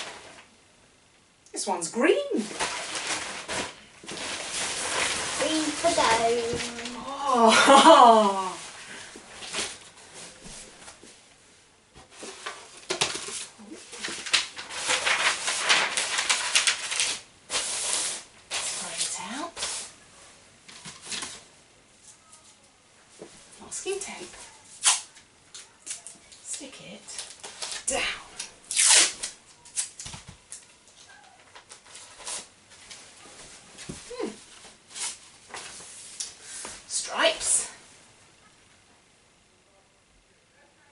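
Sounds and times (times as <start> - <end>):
materials rustling and crinkling: 0.0 - 0.5, 2.2 - 11.2, 11.9 - 38.0
adhesive tape ripping off roll: 24.8 - 26.1, 28.7 - 30.1.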